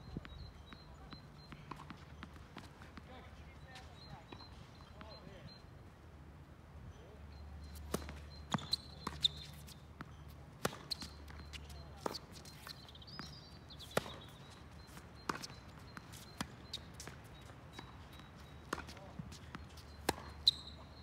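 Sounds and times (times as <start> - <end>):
tennis ball bouncing: 0.2 - 5.2, 7.6 - 20.8
tennis ball struck by rackets: 10.1 - 11.2, 13.8 - 14.4, 18.7 - 20.6.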